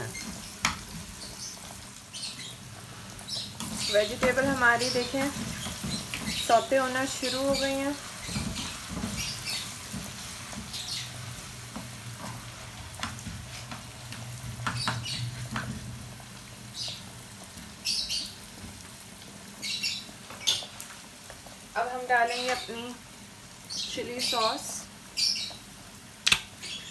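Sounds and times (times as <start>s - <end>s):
spatula stirring in pan: 0.0s - 19.4s
vegetables sizzling in oil: 0.0s - 26.9s.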